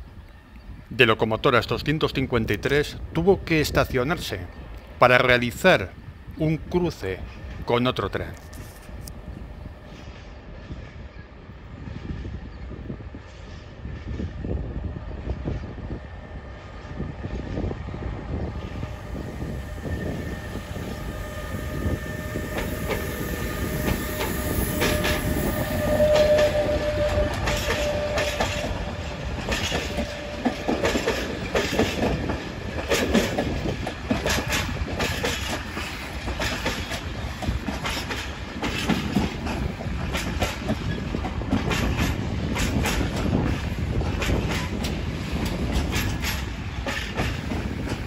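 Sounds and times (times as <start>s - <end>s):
electric locomotive rumble and whine: 2.5s - 48.0s
train wheels clacking over rail joints: 22.5s - 48.0s.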